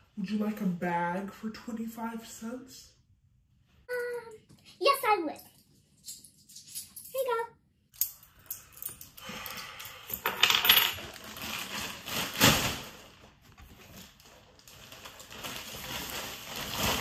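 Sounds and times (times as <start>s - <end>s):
coins clinking and clattering: 10.2s - 11.0s
plastic bag crinkling: 11.0s - 17.0s.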